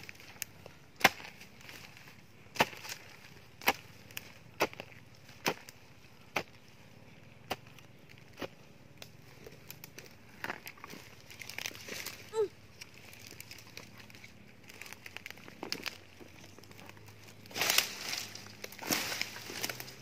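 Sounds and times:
hoe chopping into soil: 1.0s - 1.4s.

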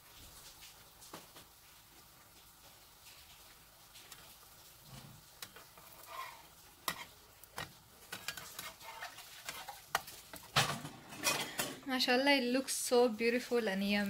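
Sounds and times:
faint sizzle: 0.0s - 14.0s
metal spatula scraping frying pan: 4.9s - 11.9s.

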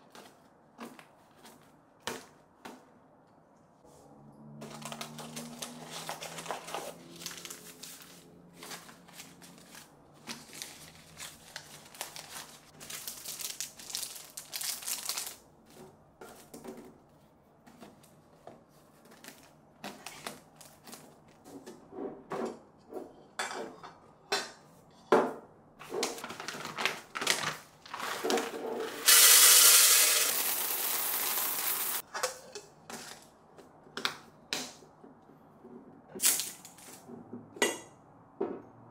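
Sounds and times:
paper sachets rustling: 4.6s - 15.8s, 26.0s - 32.0s.

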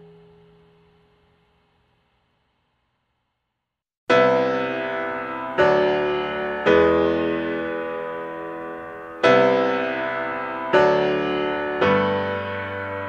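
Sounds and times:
slow piano chords: 4.1s - 13.0s.

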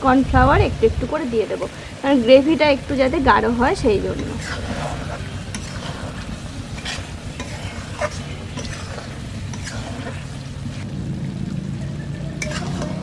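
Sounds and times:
steady sizzle: 0.0s - 13.0s
metal spatula scraping pan: 2.9s - 10.8s, 12.4s - 13.0s.

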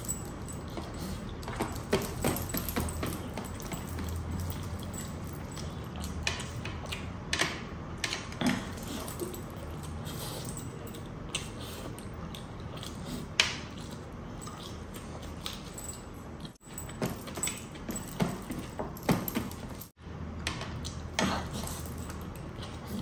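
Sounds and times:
metal bracelets clinking: 0.0s - 6.6s.

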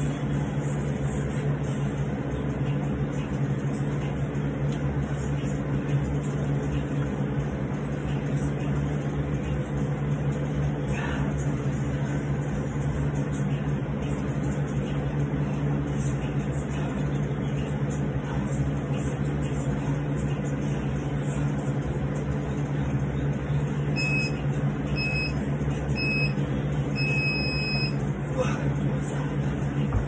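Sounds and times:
low mechanical hum: 0.0s - 30.0s
timer beeping: 24.0s - 24.4s, 25.0s - 25.4s, 26.0s - 26.4s, 27.0s - 28.0s.

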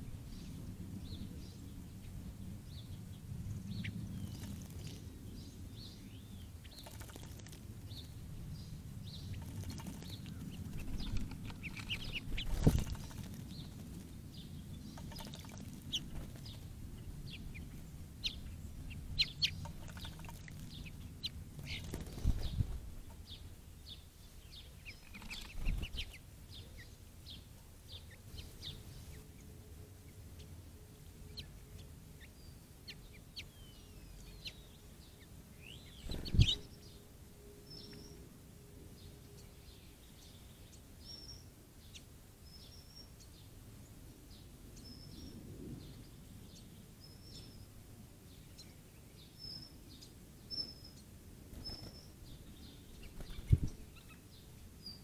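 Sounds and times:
small songbirds chirping: 0.0s - 55.0s
birds splashing and fluttering: 4.1s - 5.1s, 6.6s - 7.7s, 9.3s - 14.2s, 14.9s - 16.7s, 19.4s - 23.2s, 25.0s - 26.2s, 51.5s - 52.2s.

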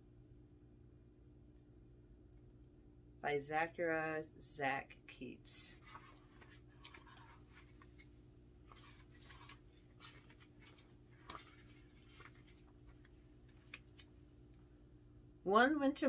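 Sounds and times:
low steady hum: 0.0s - 16.0s
paper rustles: 5.8s - 14.2s.

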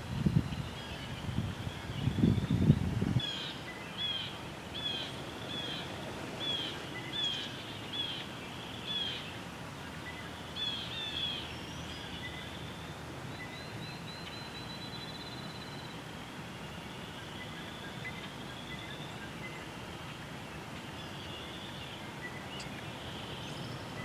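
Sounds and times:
faint outdoor background noise: 0.0s - 24.0s
songbirds calling: 0.0s - 24.0s.

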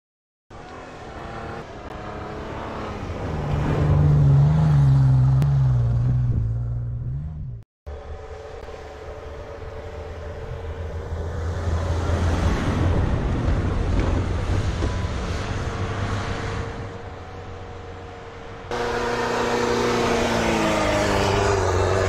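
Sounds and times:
truck engine running hard: 7.9s - 22.0s
tyres churning through snow: 7.9s - 22.0s.

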